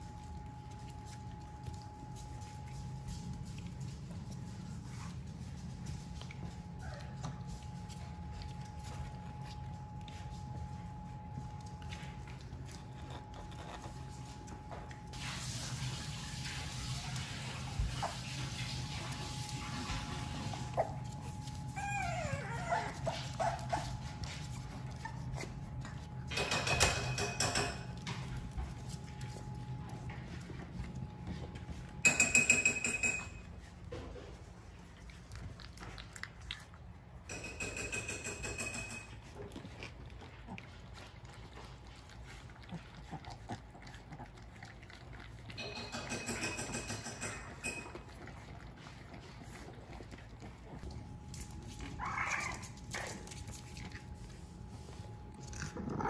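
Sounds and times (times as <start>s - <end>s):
puppies whining: 6.3s - 15.2s, 17.8s - 29.8s, 45.4s - 56.0s
puppies grunting snuffles: 42.2s - 45.5s, 55.4s - 56.0s.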